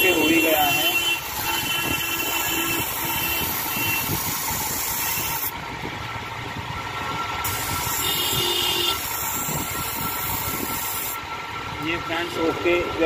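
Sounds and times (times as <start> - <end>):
blade grinding on wheel: 0.0 - 5.5, 7.4 - 11.2.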